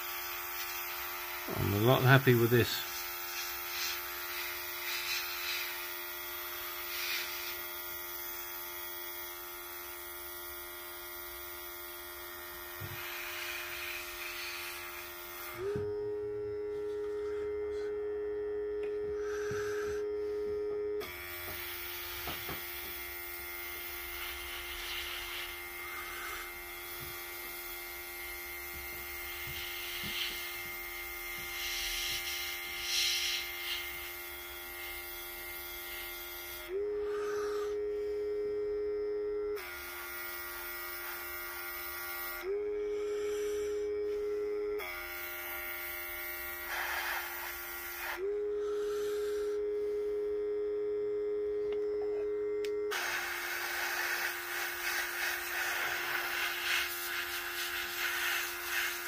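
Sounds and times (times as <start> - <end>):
compressor humming: 0.0 - 59.0
airbrush spraying hiss: 2.9 - 5.8, 24.2 - 26.4, 31.5 - 34.0, 46.7 - 48.2, 52.9 - 59.0.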